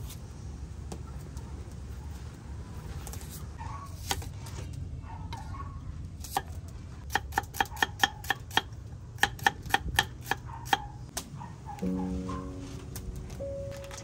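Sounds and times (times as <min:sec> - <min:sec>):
knife slicing onion on wooden board: 0:06.2 - 0:10.9.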